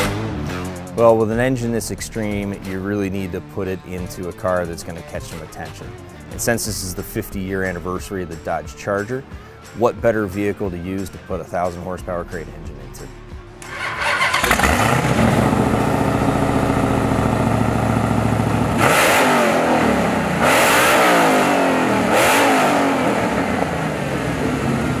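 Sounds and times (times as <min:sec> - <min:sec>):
car engine revving: 0:00.0 - 0:01.0, 0:13.6 - 0:25.0
car engine starting and idling: 0:13.6 - 0:25.0.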